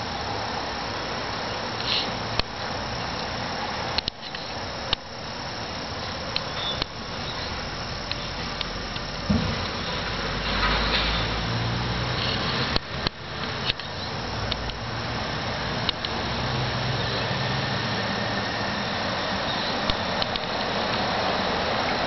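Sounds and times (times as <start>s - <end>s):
steady hiss: 0.0s - 22.0s
small clicks and smacks: 15.8s - 16.2s, 19.8s - 21.0s.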